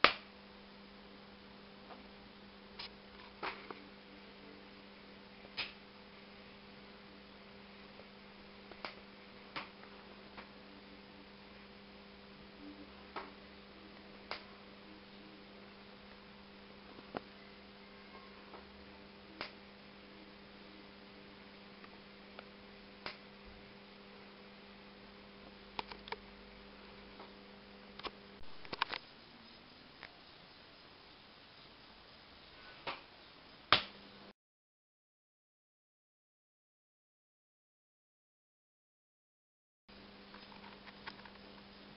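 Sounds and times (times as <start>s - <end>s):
television electrical hum: 0.0s - 34.3s, 39.9s - 41.9s
sharp electrical clicks: 5.4s - 5.8s, 8.7s - 10.6s, 14.2s - 14.5s, 19.4s - 19.6s, 21.8s - 23.3s, 25.7s - 26.3s, 27.2s - 30.2s.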